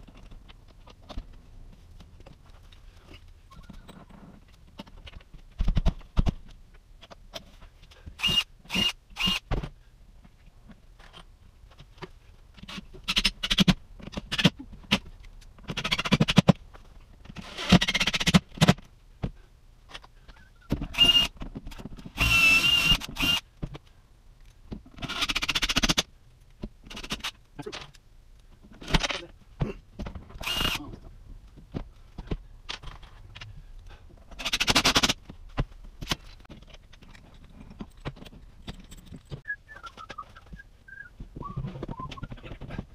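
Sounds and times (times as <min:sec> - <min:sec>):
cordless drill driving screws: 0:08.2 - 0:09.4, 0:20.9 - 0:21.3, 0:22.2 - 0:23.4, 0:30.4 - 0:30.8.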